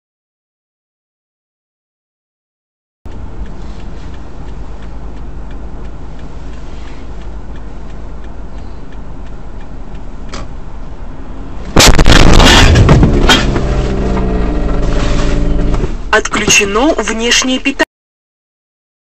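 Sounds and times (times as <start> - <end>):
light regular ticking: 3.1 - 11.6
road and engine rumble: 3.1 - 17.9.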